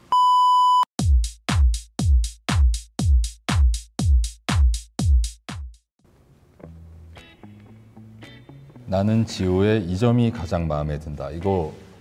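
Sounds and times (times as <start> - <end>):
short electronic beep: 0.1 - 0.9
drum machine kick: 1.0 - 5.8.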